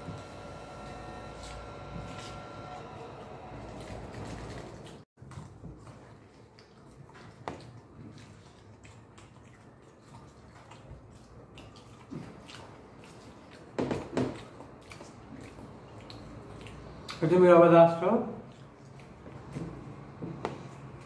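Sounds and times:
crunching and chewing: 0:03.7 - 0:17.4, 0:18.4 - 0:21.0
wet slurping mouth noises: 0:03.7 - 0:17.4, 0:18.3 - 0:21.0.

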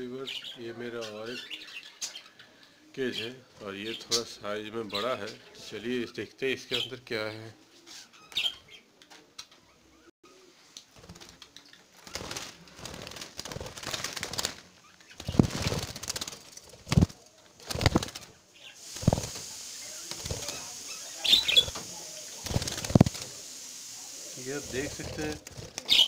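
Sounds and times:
rustling: 0:10.7 - 0:23.4
birds fluttering wings in a cage: 0:10.9 - 0:26.0.

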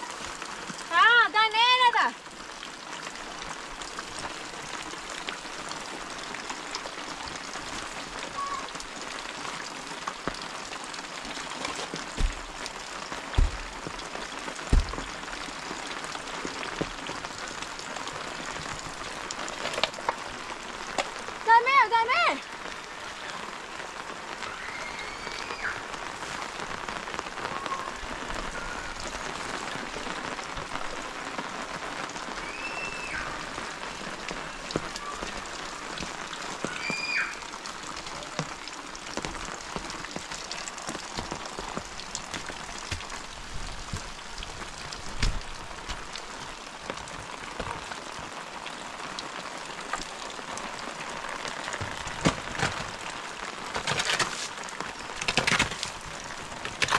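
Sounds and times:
steady rain: 0:00.0 - 0:56.9
dull thump: 0:12.2 - 0:12.7, 0:13.3 - 0:14.0, 0:14.7 - 0:15.2
short high whistled calls: 0:32.4 - 0:33.4, 0:36.7 - 0:37.4.

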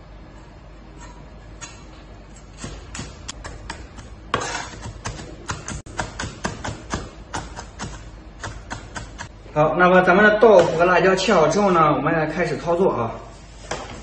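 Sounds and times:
cleaver chopping on wooden block: 0:02.6 - 0:09.3.

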